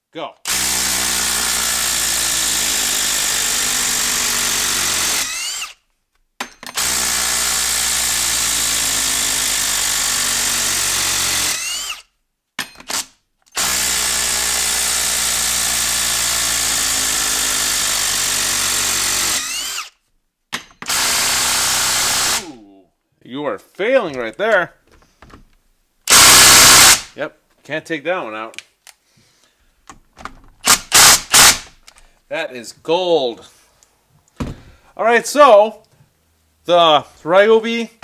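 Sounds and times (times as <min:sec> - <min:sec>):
impact driver hammering: 0:06.4 - 0:12.0, 0:20.5 - 0:22.4, 0:26.1 - 0:27.1, 0:30.6 - 0:31.8
impact driver whine: 0:15.6 - 0:20.0, 0:20.8 - 0:22.5, 0:26.1 - 0:27.1, 0:30.6 - 0:31.8.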